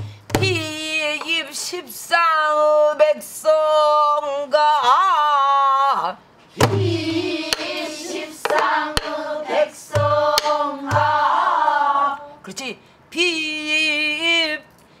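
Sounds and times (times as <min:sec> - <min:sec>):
barrel drum thumps: 0:00.0 - 0:00.7, 0:06.6 - 0:07.7, 0:09.9 - 0:11.3
woman singing: 0:00.4 - 0:05.6
group of voices singing: 0:06.6 - 0:12.4
drum stick clicks: 0:07.5 - 0:07.8, 0:09.9 - 0:11.1.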